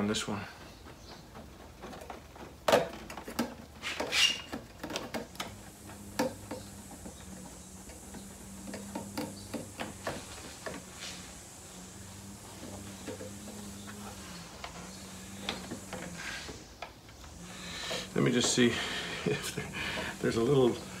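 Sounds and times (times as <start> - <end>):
small clicks and knocks of tools: 1.8 - 10.9
brief scrape: 3.8 - 4.5.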